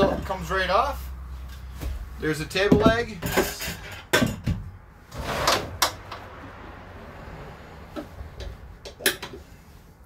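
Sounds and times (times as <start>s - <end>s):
table leg scraping: 5.1s - 6.0s.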